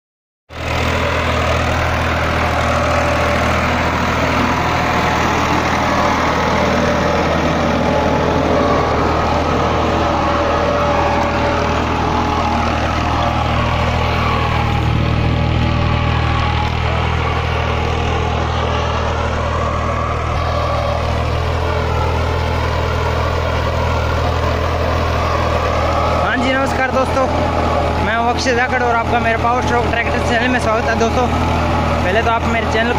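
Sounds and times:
tractor diesel engine under load: 0.5 - 32.9.

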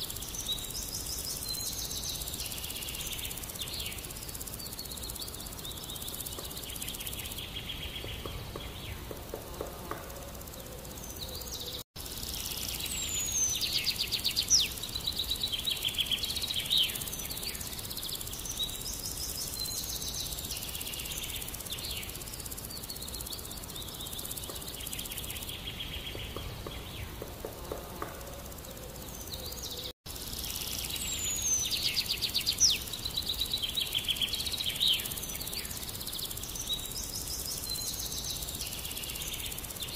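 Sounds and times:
background hiss: 0.0 - 39.9
songbirds singing: 0.0 - 39.9.

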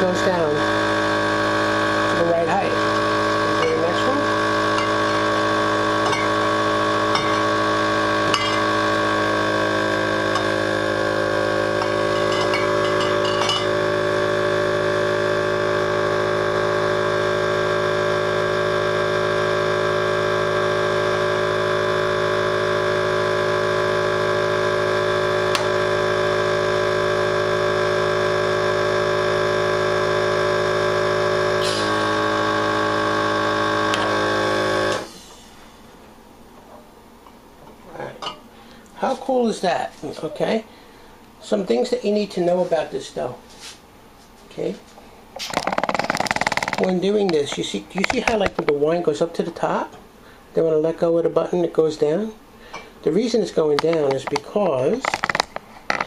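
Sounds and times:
electric vacuum pump humming: 0.0 - 56.0
glass clinking: 8.3 - 8.7, 11.8 - 13.8, 38.2 - 38.4.

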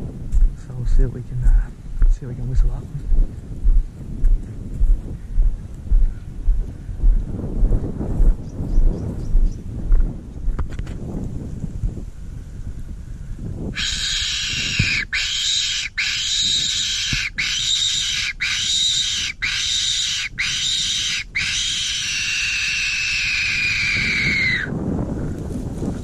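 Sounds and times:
whistle squeals: 13.8 - 24.7.

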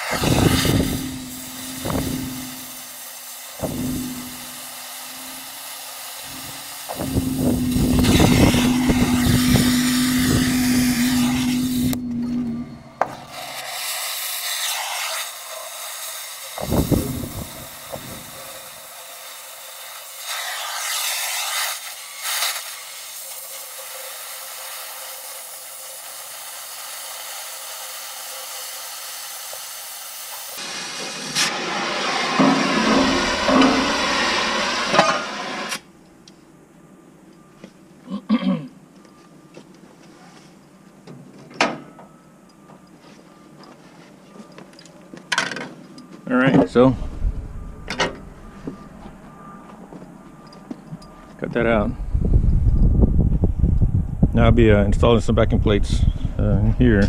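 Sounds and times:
cutting torch hissing: 0.0 - 35.9.

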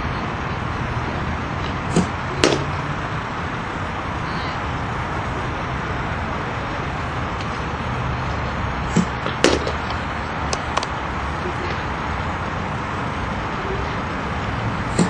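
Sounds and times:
bat cracking against ball: 1.7 - 2.8, 8.9 - 10.9.

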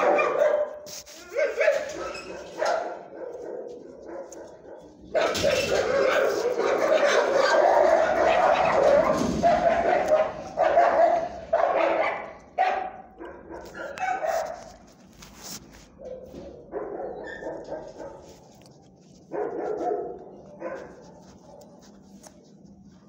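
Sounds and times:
dog barking: 0.0 - 14.8, 15.9 - 18.6, 19.2 - 22.4.

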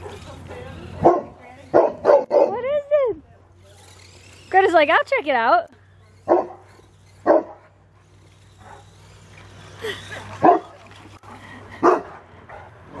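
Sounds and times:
dog barking: 0.5 - 2.6, 7.3 - 7.6, 10.4 - 10.7, 11.8 - 12.2.

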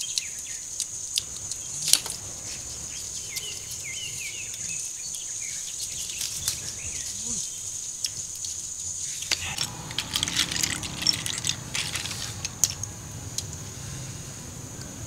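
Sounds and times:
snail shells clicking together: 0.0 - 13.6.

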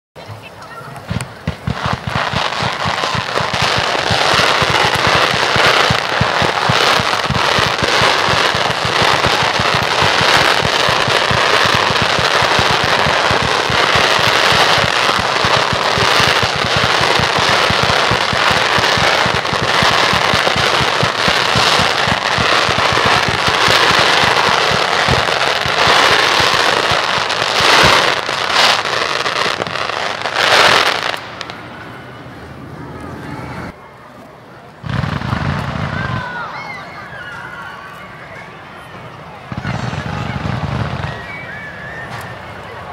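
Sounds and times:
fireworks bursts and crackling: 0.2 - 33.8, 34.8 - 42.9
loud fireworks bangs: 0.6 - 32.2, 34.8 - 36.8, 39.4 - 42.9.

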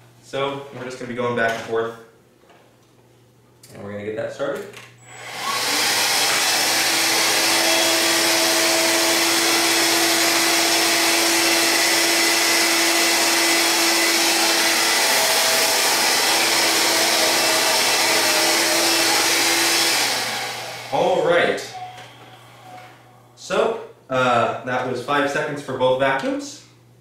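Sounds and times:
vacuum cleaner motor humming: 5.0 - 23.0
vacuum pushed over carpet: 5.3 - 20.9.

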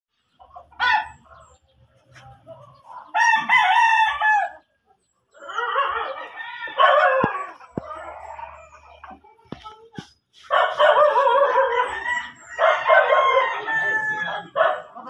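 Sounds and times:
rooster crowing: 3.2 - 4.6, 5.4 - 7.6, 11.0 - 14.6.

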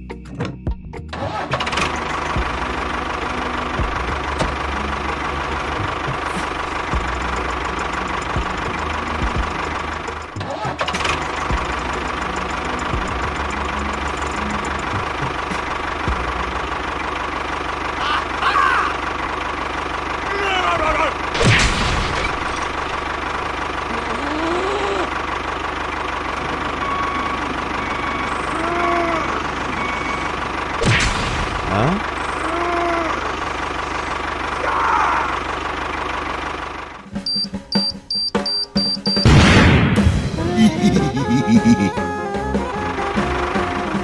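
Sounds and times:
tractor engine running: 0.0 - 44.0.

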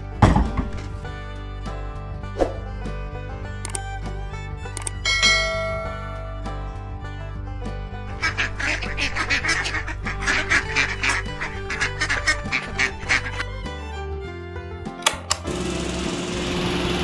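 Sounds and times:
background music: 0.0 - 17.0
ducks quacking: 8.0 - 13.8.

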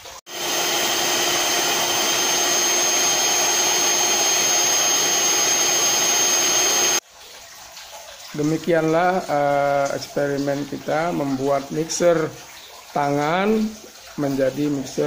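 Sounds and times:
electric hand mixer whining: 0.0 - 7.0.

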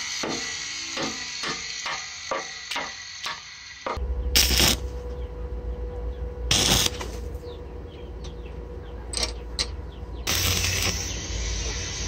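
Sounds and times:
arc welding crackle: 0.0 - 5.0, 6.5 - 7.2, 10.3 - 12.0
steady low hum: 4.0 - 12.0.

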